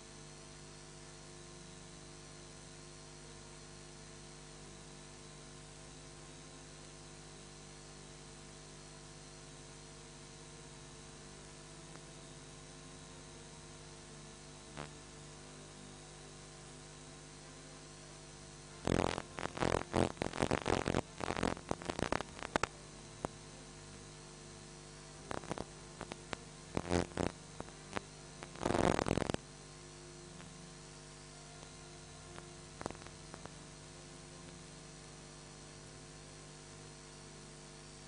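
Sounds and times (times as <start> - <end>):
electrical hum: 0.0 - 38.0
crackling bursts: 14.7 - 15.2, 18.8 - 23.4, 25.2 - 29.4, 32.4 - 33.6.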